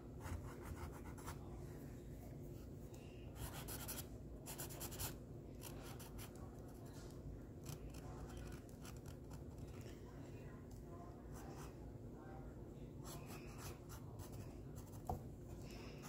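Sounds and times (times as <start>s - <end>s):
marker scratching on canvas: 3.4s - 6.4s.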